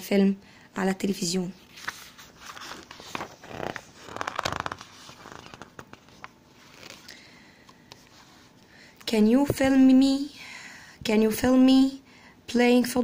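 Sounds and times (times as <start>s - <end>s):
paper page turning: 1.6s - 7.1s.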